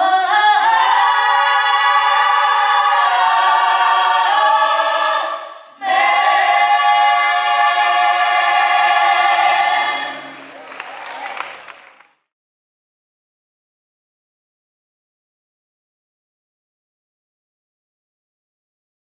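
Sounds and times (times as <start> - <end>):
choir singing a cappella: 0.0 - 10.7.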